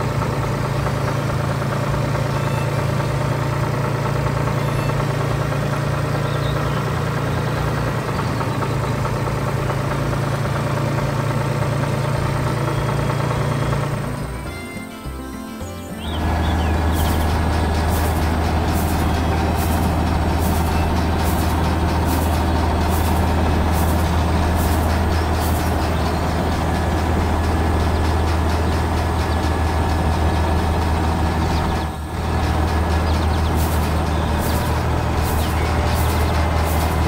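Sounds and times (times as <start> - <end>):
tractor engine running: 0.0 - 37.0.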